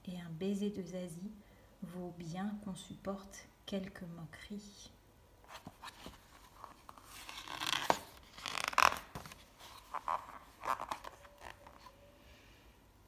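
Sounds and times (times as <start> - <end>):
paper rustling as page turned: 5.5 - 12.0.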